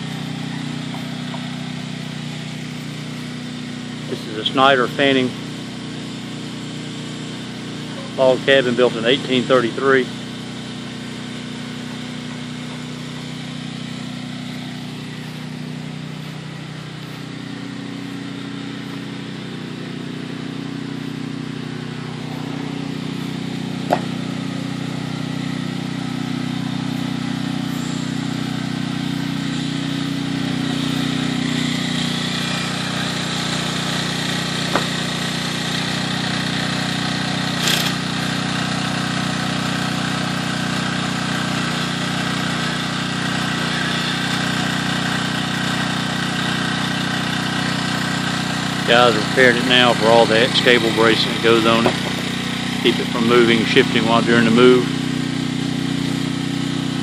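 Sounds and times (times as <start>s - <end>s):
engine idling: 0.0s - 57.0s
short sharp knocks: 51.8s - 52.3s.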